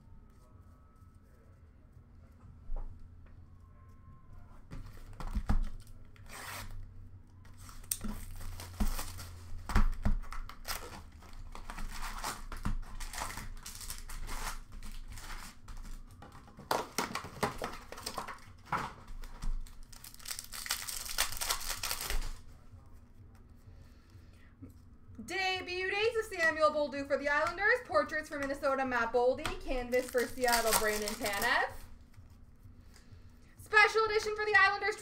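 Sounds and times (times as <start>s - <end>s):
plastic wrappers ripping and crinkling: 7.5s - 22.6s, 29.7s - 32.1s.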